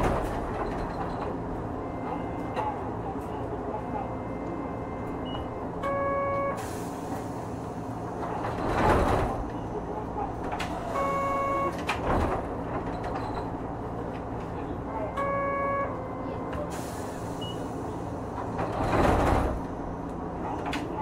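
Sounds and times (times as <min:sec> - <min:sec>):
tram low hum: 0:00.0 - 0:21.0
air doors hissing: 0:06.6 - 0:09.3, 0:16.6 - 0:19.7.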